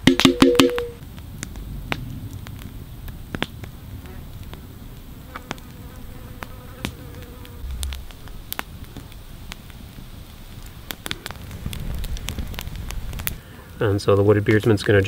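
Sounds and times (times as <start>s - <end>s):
flying insect buzzing: 5.2s - 8.6s.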